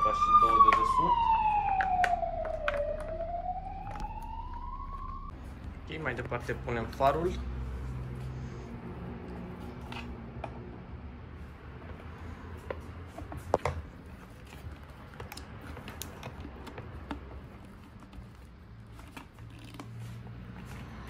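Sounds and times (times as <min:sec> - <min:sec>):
plastic clicks and handling noises: 0:14.4 - 0:19.9.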